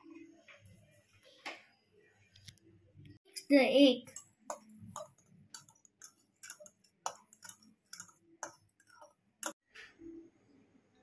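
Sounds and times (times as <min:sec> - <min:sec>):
spoon clinking against glass bowl: 0:04.1 - 0:09.6.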